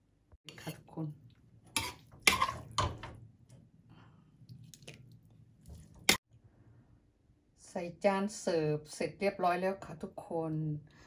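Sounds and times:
wet plops and scrapes of food: 4.4s - 6.2s.

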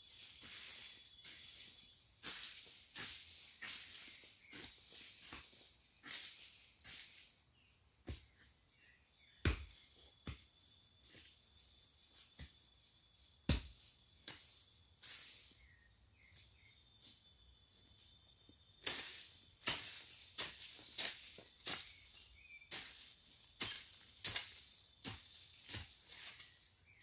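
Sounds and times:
hoe scraping dry soil: 0.0s - 7.4s, 13.7s - 27.0s.

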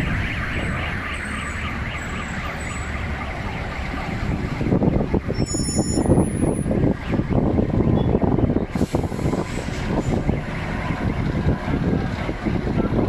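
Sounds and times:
car alarms warbling: 0.0s - 4.1s, 4.9s - 8.6s.

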